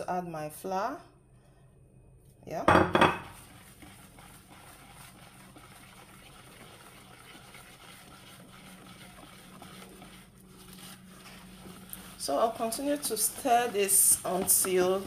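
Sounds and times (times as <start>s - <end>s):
whisk scraping and swishing batter: 3.2s - 15.0s.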